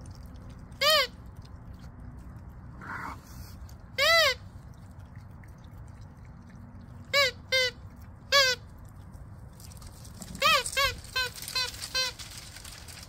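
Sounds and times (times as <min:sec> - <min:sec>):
squeaky toy squeaks: 0:00.8 - 0:01.2, 0:04.0 - 0:04.4, 0:07.1 - 0:08.7, 0:10.2 - 0:13.0.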